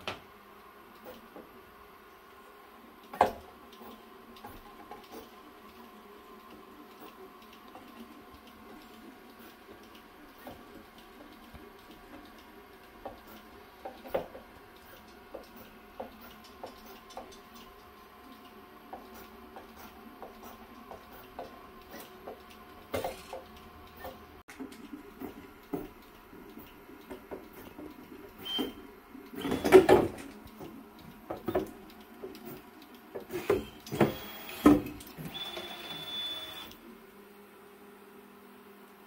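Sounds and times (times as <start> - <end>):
stepper motors whining: 33.4 - 36.8.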